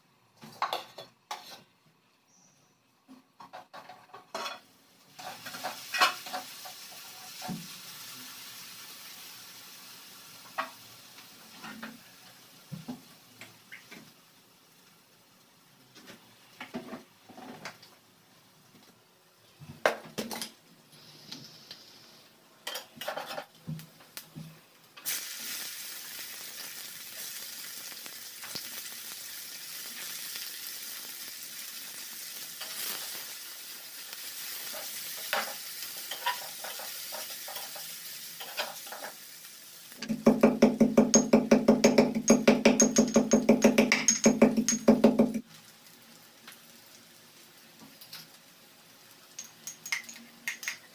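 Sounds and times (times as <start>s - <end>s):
food sizzling in a pan: 4.3s - 18.7s, 20.2s - 50.9s
knife tapping on wooden board: 40.1s - 45.4s.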